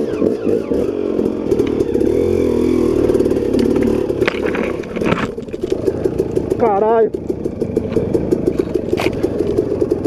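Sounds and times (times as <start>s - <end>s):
two-stroke dirt bike engine revving: 0.0s - 10.0s
sharp clattering knocks: 3.1s - 10.0s.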